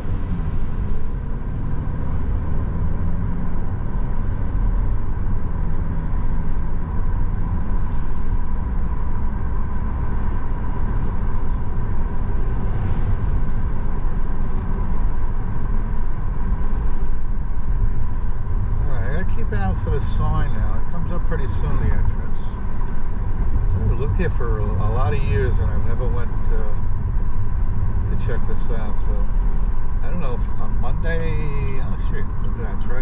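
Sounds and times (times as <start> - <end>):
car tyre and engine rumble: 0.0 - 33.0
faint steady whine: 16.9 - 33.0.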